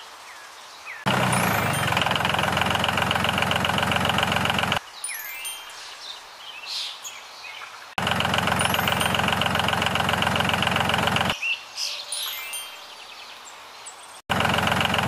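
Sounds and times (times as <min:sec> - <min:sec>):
birds chirping: 0:00.0 - 0:15.0
motor running with rhythmic pulse: 0:01.1 - 0:04.8, 0:08.0 - 0:11.4, 0:14.3 - 0:15.0.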